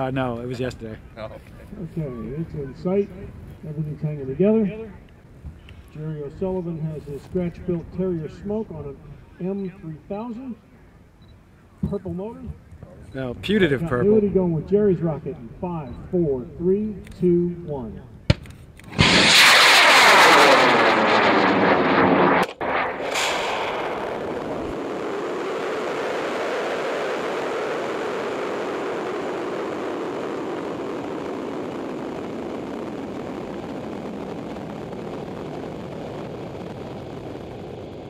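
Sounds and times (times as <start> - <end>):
rocket motor roaring: 18.8 - 38.0
steady rushing noise: 18.8 - 38.0.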